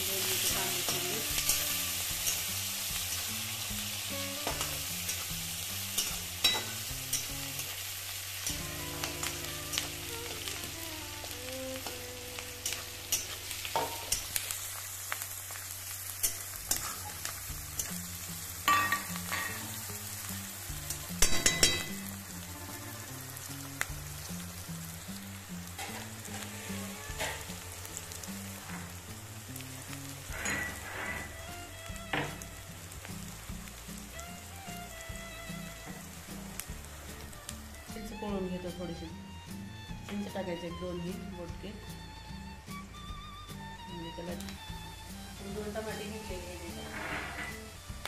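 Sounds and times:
onions sizzling in hot oil: 0.0s - 48.0s
spatula scraping pan: 25.8s - 29.0s, 30.3s - 31.5s, 46.6s - 47.8s.

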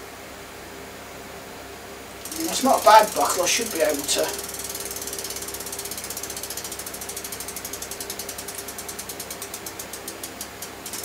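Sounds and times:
bicycle freewheel ticking: 2.2s - 11.0s.

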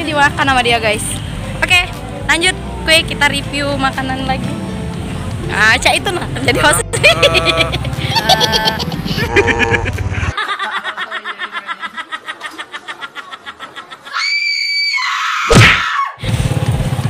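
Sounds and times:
laughter and voices: 6.5s - 14.2s
woman cackling laugh: 6.9s - 14.2s.

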